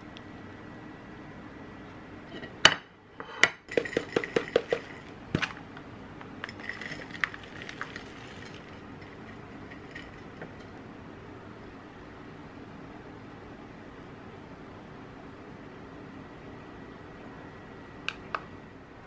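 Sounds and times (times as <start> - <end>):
container knocking when shaken: 3.7 - 5.1
granola pattering on a plate: 6.4 - 10.1.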